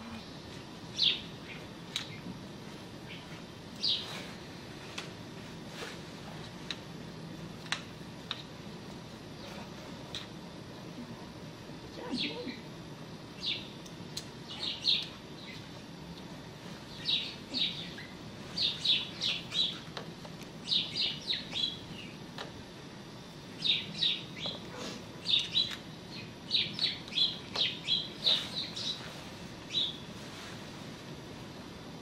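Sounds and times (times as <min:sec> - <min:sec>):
small birds chirping: 0:00.9 - 0:02.3, 0:03.0 - 0:04.3, 0:13.3 - 0:15.8, 0:16.7 - 0:22.2, 0:23.4 - 0:30.1.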